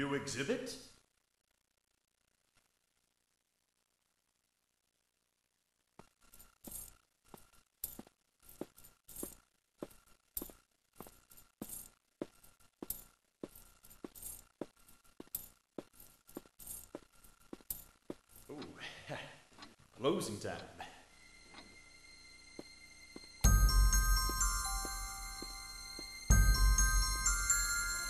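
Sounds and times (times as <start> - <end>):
faint steady hum: 0.0 - 28.0
footsteps with metallic jangle: 6.0 - 18.7, 22.5 - 28.0.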